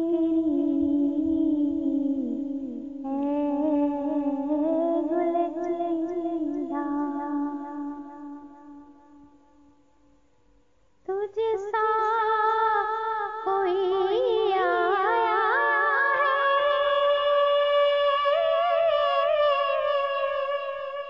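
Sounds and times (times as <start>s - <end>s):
woman singing unaccompanied: 0.0s - 9.7s, 11.0s - 21.0s.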